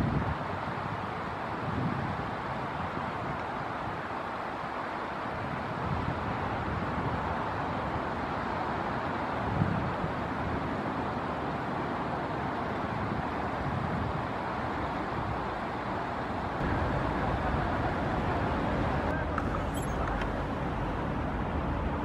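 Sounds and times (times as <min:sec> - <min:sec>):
outdoor rushing noise: 0:11.5 - 0:22.0.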